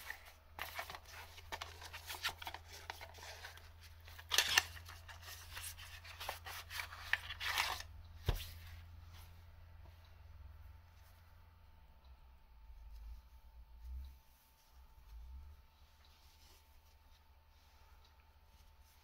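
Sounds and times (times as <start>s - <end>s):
packaging rustling and crinkling: 0.0s - 7.9s.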